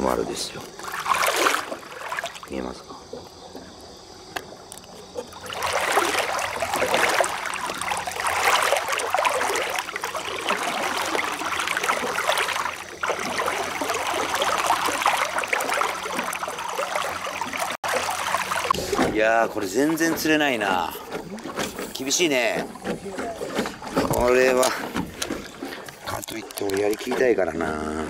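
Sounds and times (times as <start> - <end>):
water splashing around a hand: 0.6 - 2.8, 5.2 - 27.3.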